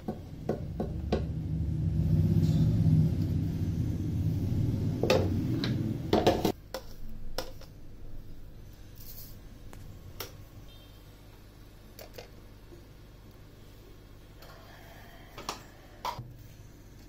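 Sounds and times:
low rumble: 0:00.3 - 0:06.5.

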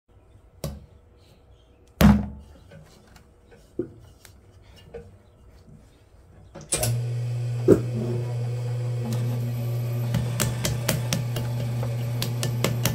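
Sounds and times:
pottery wheel motor humming: 0:06.7 - 0:12.9.

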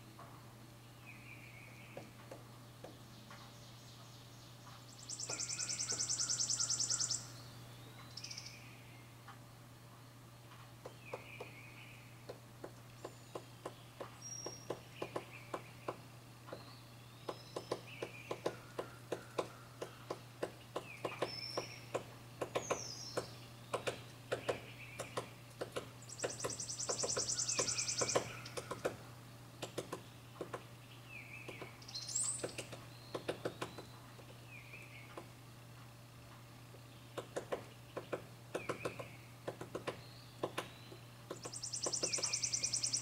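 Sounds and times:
woodpecker tapping on wood: 0:01.9 - 0:03.6, 0:05.2 - 0:07.0, 0:10.6 - 0:11.6, 0:12.2 - 0:30.7, 0:31.4 - 0:35.3, 0:36.3 - 0:43.0
bird chirps: 0:02.9 - 0:09.1, 0:26.0 - 0:28.8, 0:30.0 - 0:35.2, 0:39.9 - 0:43.0.

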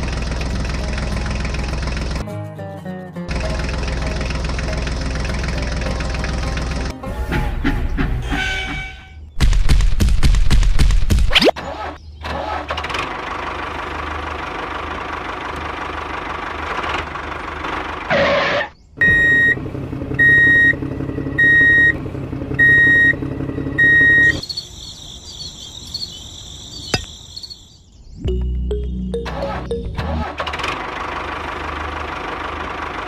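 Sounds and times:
electronic beeps: 0:23.8 - 0:24.7, 0:28.2 - 0:30.2.

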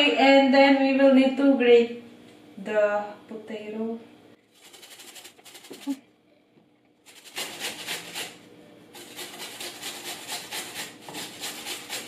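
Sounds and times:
potato grated on metal grater: 0:04.5 - 0:06.0, 0:07.0 - 0:12.0.

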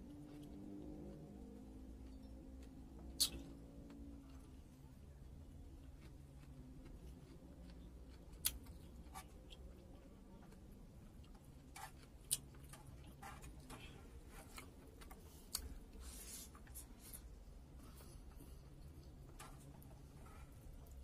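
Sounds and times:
chewing clicks and smacks: 0:03.2 - 0:04.4, 0:05.8 - 0:13.9.

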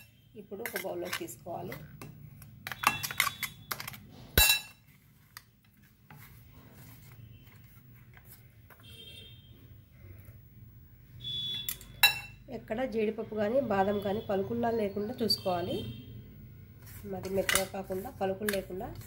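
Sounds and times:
spoon scraping a metal jar: 0:00.0 - 0:02.0.

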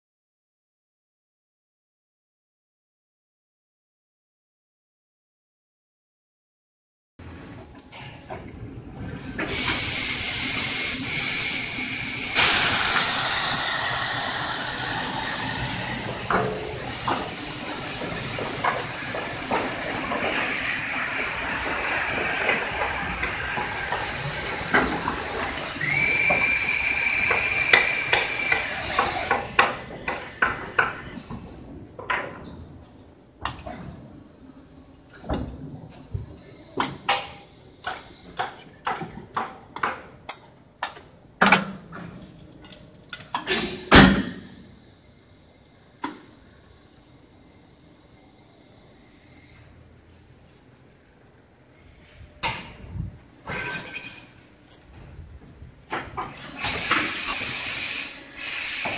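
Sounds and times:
machinery hiss with high whistle: 0:09.5 - 0:15.8, 0:25.6 - 0:29.2, 0:56.9 - 0:58.9.

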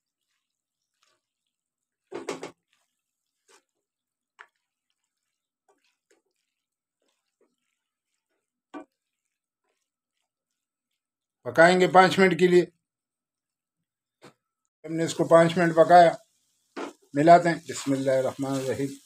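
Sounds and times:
spoon scraping in a pan: 0:00.0 - 0:11.2, 0:15.1 - 0:19.0.

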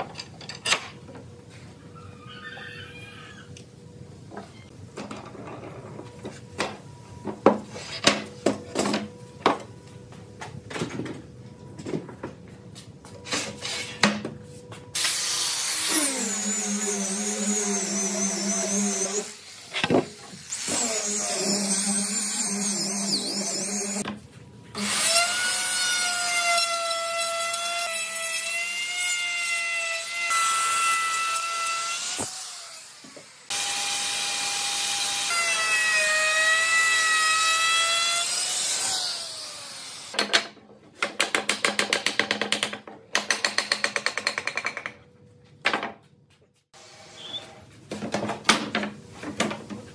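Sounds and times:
knocks of boards and pipe clamps: 0:40.1 - 0:45.0, 0:45.6 - 0:46.0, 0:47.9 - 0:49.7.

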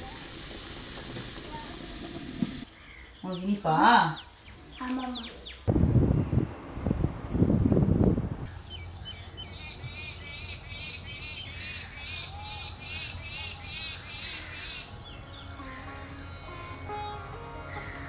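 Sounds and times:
birds calling: 0:02.6 - 0:05.7, 0:08.5 - 0:18.0
insects trilling: 0:08.2 - 0:18.0.

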